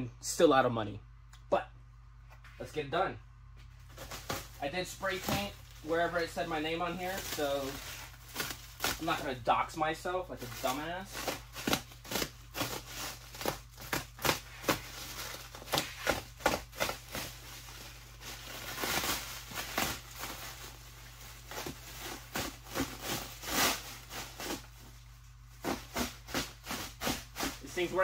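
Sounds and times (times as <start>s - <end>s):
plastic wrap crackling and ripping: 4.0s - 9.4s, 10.4s - 28.0s
plastic wrap crinkling tears: 4.0s - 9.5s, 10.4s - 25.0s.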